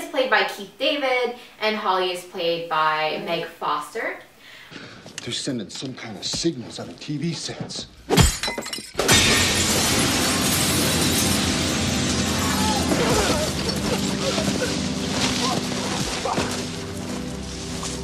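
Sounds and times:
window glass shattering: 0:08.1 - 0:16.0
broken glass crashing down: 0:08.2 - 0:16.0
dramatic score music: 0:09.5 - 0:18.0.

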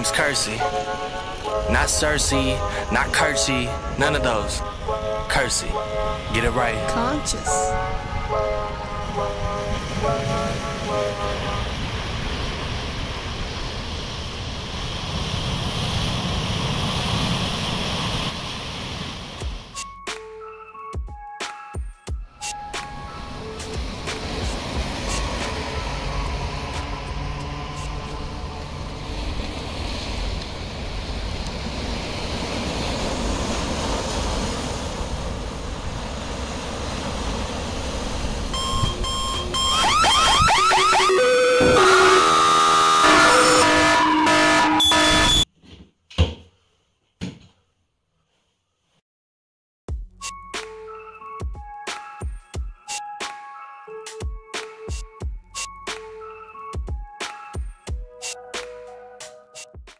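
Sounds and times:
surf washing over rocks: 0:09.8 - 0:19.7, 0:22.8 - 0:39.0
alarm clock beeping: 0:38.6 - 0:42.3, 0:44.8 - 0:45.4.

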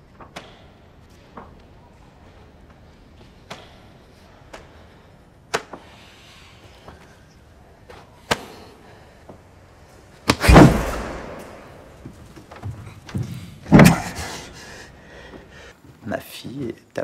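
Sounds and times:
heavy thuds with echo: 0:10.3 - 0:14.6.

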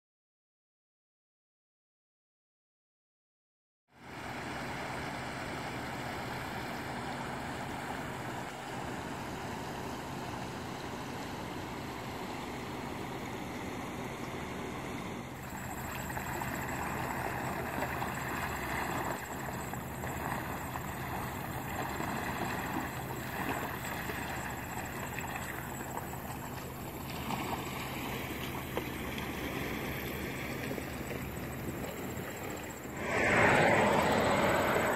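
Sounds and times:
low hum: 0:05.5 - 0:34.9
floodwater rushing and swirling: 0:15.4 - 0:34.9.

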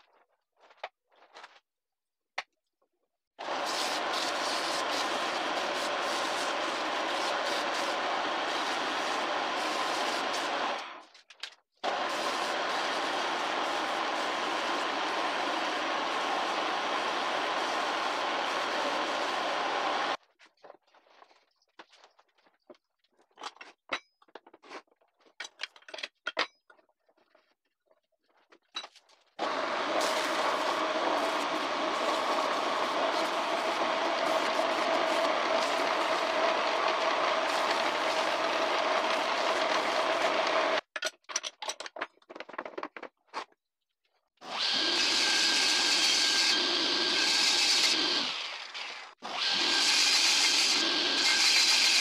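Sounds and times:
wood lathe running: 0:03.4 - 0:10.9, 0:11.9 - 0:20.2, 0:29.4 - 0:40.8, 0:44.5 - 0:52.0
sandpaper on turning wood: 0:03.6 - 0:10.6, 0:29.9 - 0:38.4
wood and steel parts clicking: 0:40.9 - 0:43.1.

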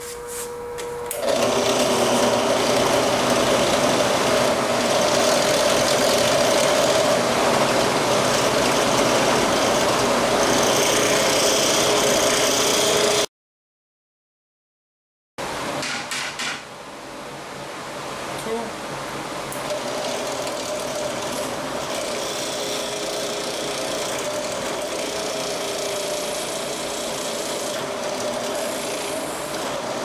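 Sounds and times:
drill press whirring: 0:00.0 - 0:13.3, 0:19.5 - 0:30.0.

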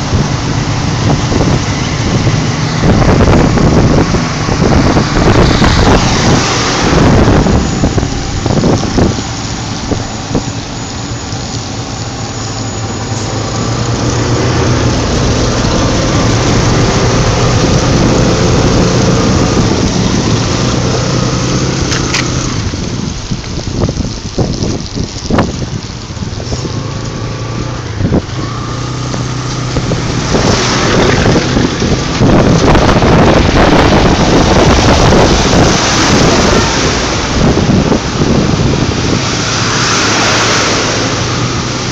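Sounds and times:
engine hum: 0:00.0 - 0:41.9
vehicle splashing through water: 0:00.0 - 0:41.9.

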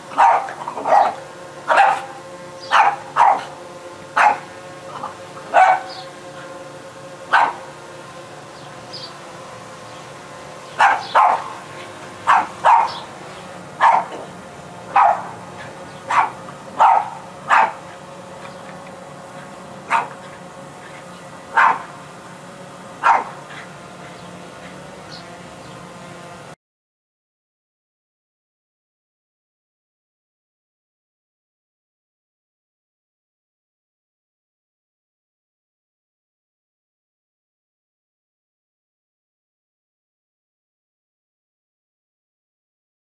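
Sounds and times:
drone propeller buzz: 0:00.0 - 0:26.6
dog barking: 0:00.1 - 0:03.5, 0:04.2 - 0:04.4, 0:05.0 - 0:06.0, 0:07.3 - 0:07.6, 0:10.8 - 0:11.5, 0:12.3 - 0:13.0, 0:13.8 - 0:14.3, 0:14.9 - 0:15.4, 0:16.1 - 0:17.8, 0:19.9 - 0:20.2, 0:21.5 - 0:21.9, 0:23.0 - 0:23.7.

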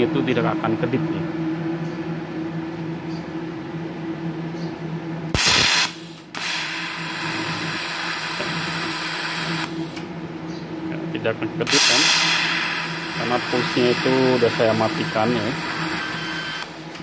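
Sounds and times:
steady low hum: 0:00.0 - 0:17.0
welding arc hissing: 0:05.3 - 0:10.0, 0:11.7 - 0:17.0.

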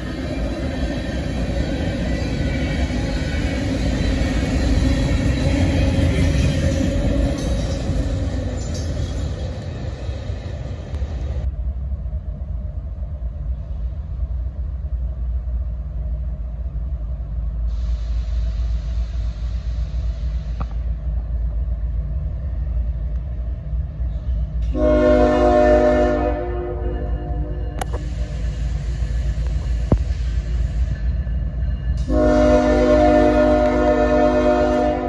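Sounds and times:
freight train rumbling: 0:00.0 - 0:35.0
locomotive air horn chord: 0:24.7 - 0:27.6, 0:32.0 - 0:35.0.

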